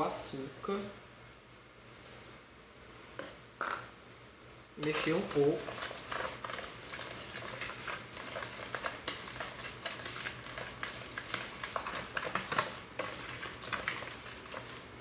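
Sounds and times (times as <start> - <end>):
spoon scraping plastic bowl: 4.8 - 15.0.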